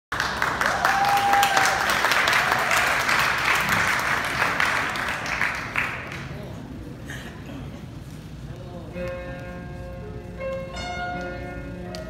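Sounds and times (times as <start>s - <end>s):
audience applauding: 0.1s - 6.5s.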